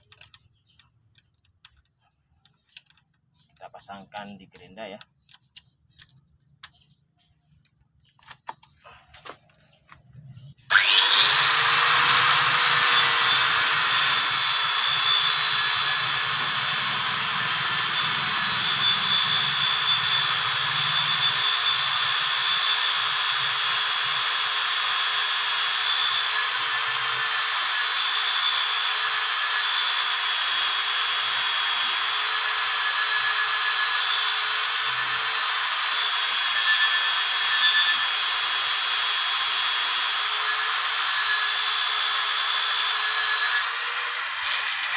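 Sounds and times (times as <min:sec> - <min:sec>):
angle grinder sanding metal: 0:10.7 - 0:44.9.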